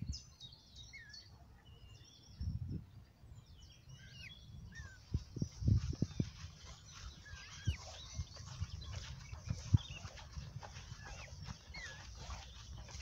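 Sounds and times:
small birds chirping: 0.0s - 13.0s
dull low thumps: 5.1s - 13.0s.

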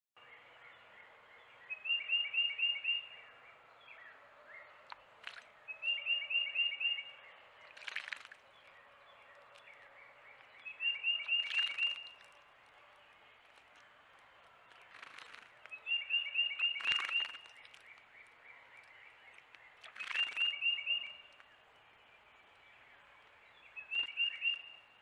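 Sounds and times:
wren singing loud rolling song: 0.2s - 25.0s
short scratchy bird calls: 11.1s - 12.4s, 16.4s - 17.8s, 19.8s - 20.9s.

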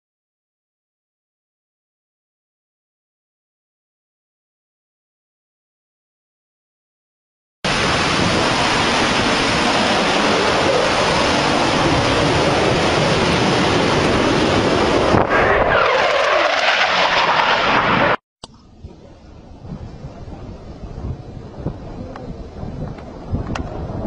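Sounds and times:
wind on microphone: 7.7s - 17.2s, 17.8s - 24.0s
jet fighter passing: 7.7s - 18.2s.

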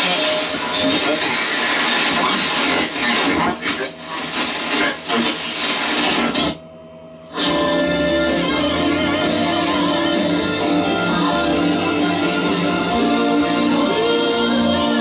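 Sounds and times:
choppy shortwave radio audio: 0.0s - 6.6s
music from radio station: 0.0s - 15.0s.

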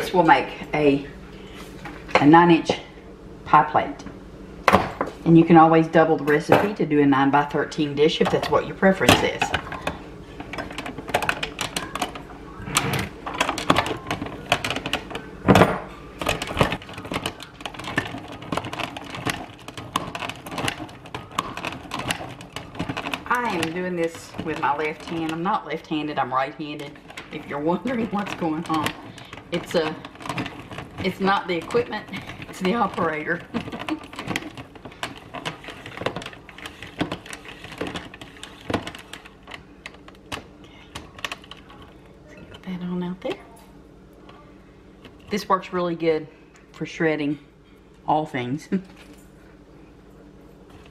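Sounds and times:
rotary grater shredding butter: 16.4s - 39.5s.

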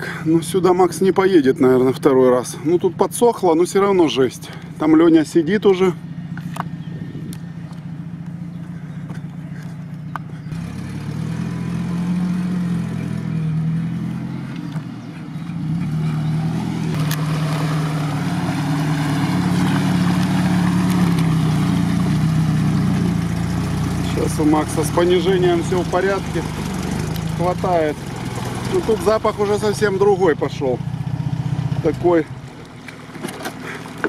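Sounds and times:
off-road vehicle engine drone: 0.0s - 34.0s
mud and water sloshing: 13.7s - 30.6s, 31.4s - 34.0s.

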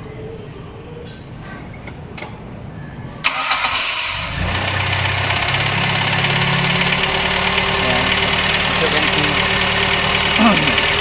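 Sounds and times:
car engine fast idle: 3.3s - 11.0s.

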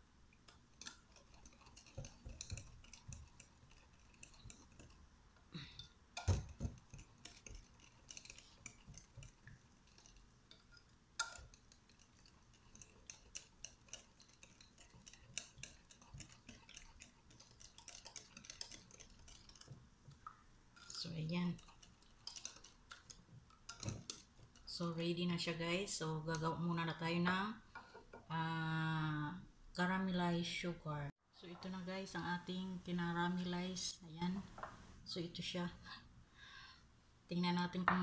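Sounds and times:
whisk clicking against glass bowl: 0.4s - 5.1s, 5.8s - 25.6s.

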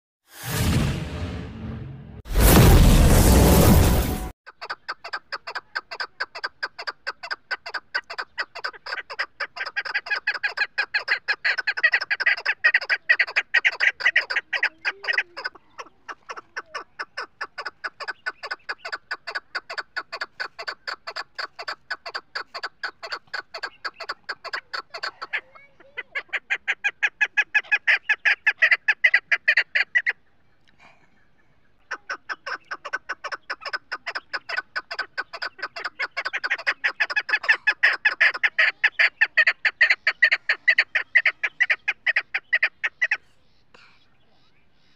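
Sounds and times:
partridge clucking call: 4.5s - 30.2s, 31.8s - 43.3s.

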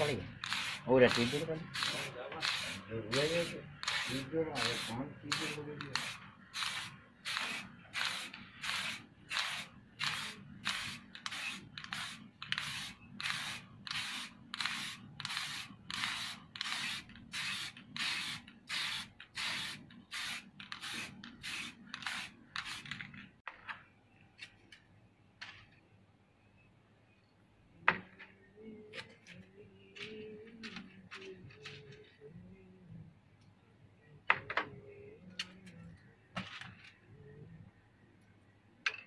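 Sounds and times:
aerosol spray can hissing: 0.0s - 22.9s.

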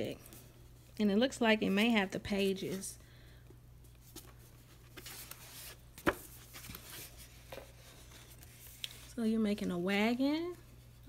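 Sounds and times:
book pages turning: 3.9s - 9.2s.

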